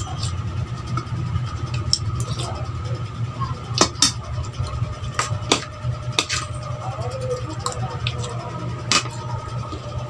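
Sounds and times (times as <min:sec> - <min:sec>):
steady low hum: 0:00.0 - 0:10.0
eating clicks and smacks: 0:01.7 - 0:02.5.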